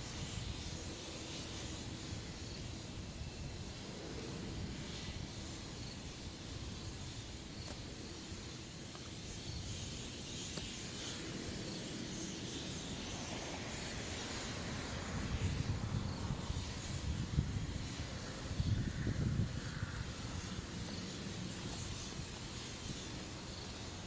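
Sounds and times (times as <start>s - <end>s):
even hiss: 0.0s - 24.0s.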